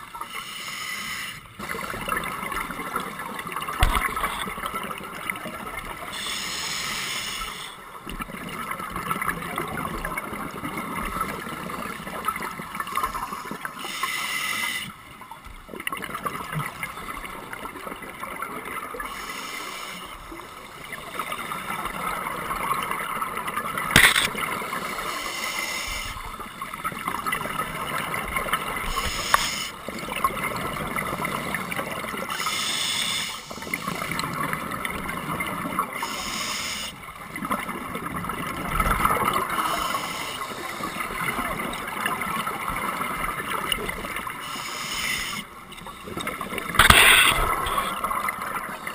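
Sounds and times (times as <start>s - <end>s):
regulator bubbly hiss underwater: 46.5s - 48.8s
exhaled bubbles burst: 46.6s - 48.8s.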